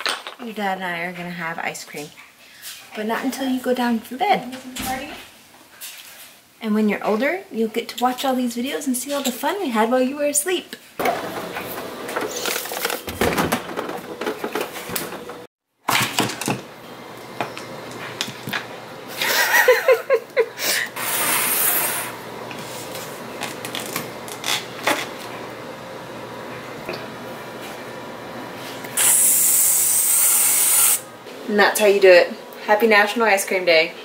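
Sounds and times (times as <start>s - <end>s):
clicks and knocks in a freezer: 11.0s - 16.7s.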